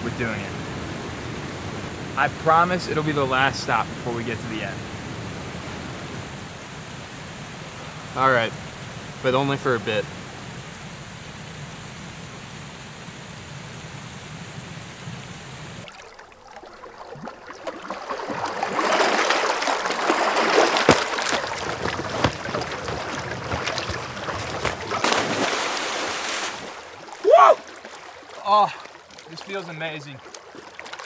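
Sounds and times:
distant waterfall rushing: 0.0s - 30.2s
small waves lapping on rocks: 15.8s - 31.0s.

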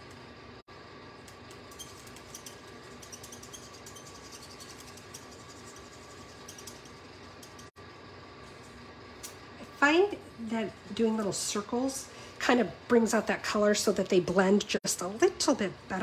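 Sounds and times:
electrical hum: 0.0s - 16.0s
marker scratching on cardstock: 1.8s - 7.6s.

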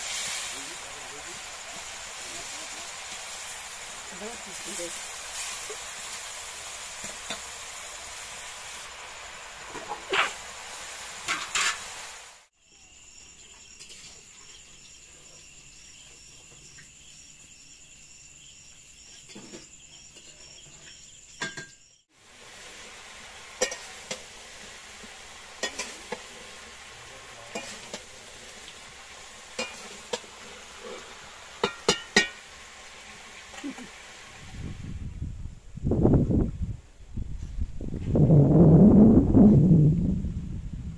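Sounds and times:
crickets chirping: 0.0s - 11.8s, 12.5s - 40.9s
food sizzling in pans: 0.0s - 34.9s
metal utensils clinking on pans: 7.0s - 7.5s, 11.2s - 11.8s, 19.2s - 21.8s, 23.6s - 24.3s, 25.6s - 26.5s, 27.4s - 28.7s, 29.5s - 32.4s.

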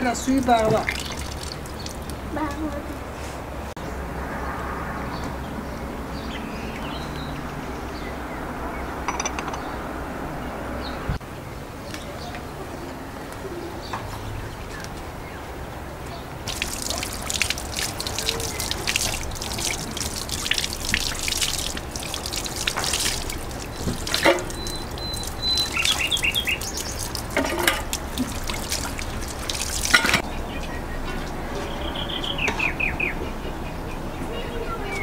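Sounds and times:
water trickling and splashing: 0.0s - 3.6s, 14.1s - 31.8s
bird chirping: 23.1s - 27.3s, 30.2s - 35.0s.

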